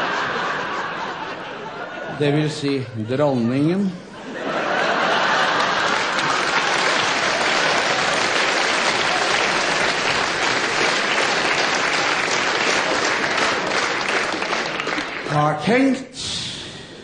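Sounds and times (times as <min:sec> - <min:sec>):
audience applauding: 0:04.8 - 0:15.6.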